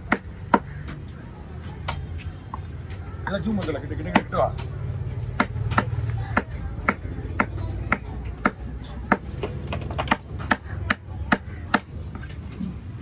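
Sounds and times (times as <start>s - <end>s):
cleaver chopping fish on wood: 0.0s - 1.0s, 3.6s - 4.7s, 5.3s - 9.3s, 10.0s - 12.0s.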